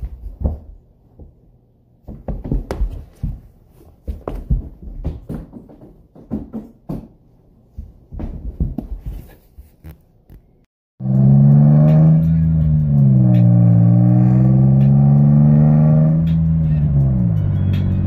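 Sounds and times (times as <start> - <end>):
knocks and scuffs on wooden floor: 0.0 - 10.0.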